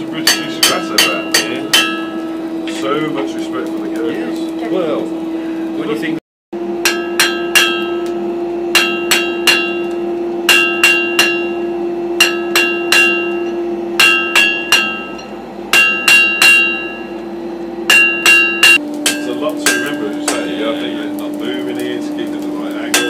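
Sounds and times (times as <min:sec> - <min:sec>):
steady hum: 0:00.0 - 0:23.0
hammer ringing on an anvil: 0:00.2 - 0:02.3, 0:06.8 - 0:17.2, 0:17.9 - 0:20.6.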